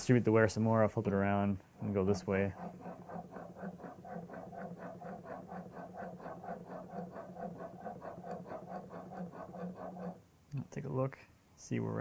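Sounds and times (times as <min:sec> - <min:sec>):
chisel scraping on sharpening stone: 0:02.5 - 0:10.2.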